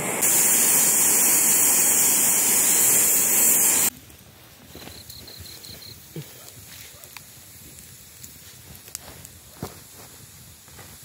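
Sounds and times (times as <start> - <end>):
pressure cooker whistle hissing: 0.0 - 3.9
wood fire crackling: 0.0 - 11.0.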